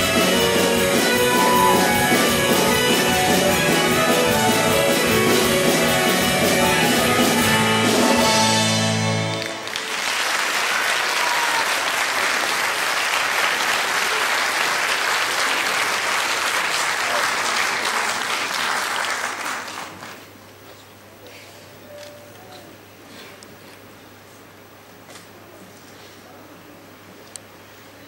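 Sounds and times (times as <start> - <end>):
audience applauding: 0.0 - 20.3.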